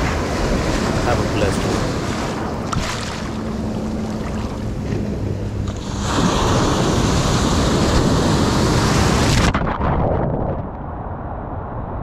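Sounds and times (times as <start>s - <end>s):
water washing on shore: 0.0s - 5.0s
wave breaking: 0.0s - 11.8s.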